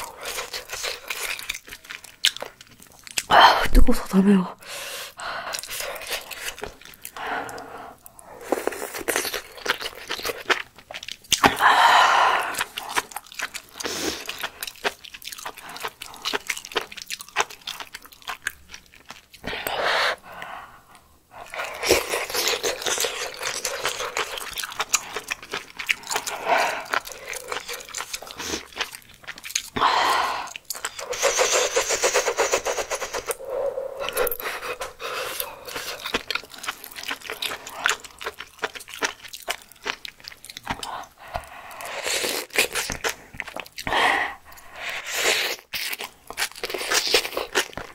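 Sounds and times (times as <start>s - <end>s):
wet chewing: 0.0s - 3.3s, 5.1s - 47.9s
noodles slurped: 21.4s - 47.9s.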